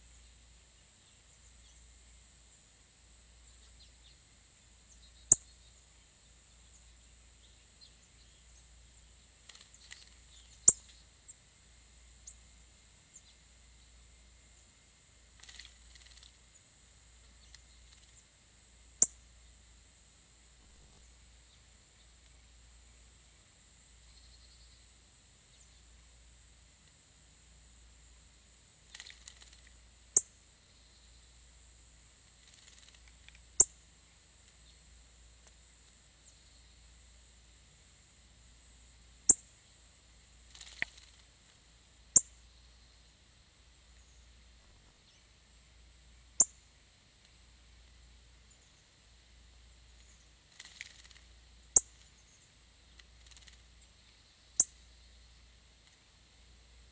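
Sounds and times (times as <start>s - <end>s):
songbird chip calls: 4.8s - 5.8s, 6.5s - 11.4s, 12.2s - 12.4s, 19.0s - 19.2s, 46.4s - 46.6s, 50.0s - 55.3s
faint high twittering ticks: 4.8s - 19.6s, 20.6s - 22.5s, 23.2s - 26.1s, 26.8s - 27.0s, 28.6s - 37.3s, 38.5s - 43.2s, 46.3s - 49.0s, 49.8s - 56.3s.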